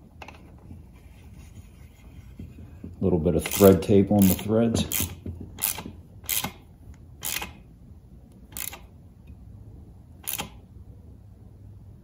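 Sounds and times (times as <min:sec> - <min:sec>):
hand tool clicking: 0:03.4 - 0:07.6, 0:08.5 - 0:08.9, 0:10.2 - 0:10.6.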